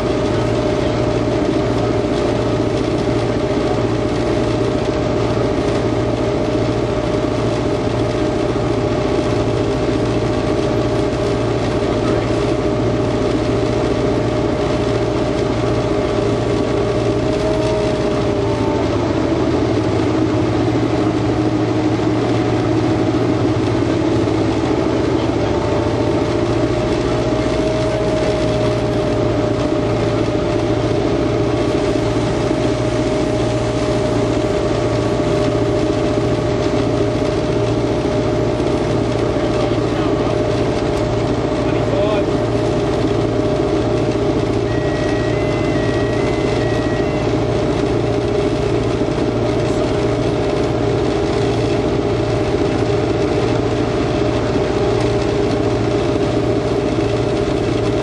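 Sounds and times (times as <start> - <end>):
diesel engine running under load: 0.0 - 58.0
steady whine: 0.0 - 58.0
wheels on track: 0.0 - 58.0.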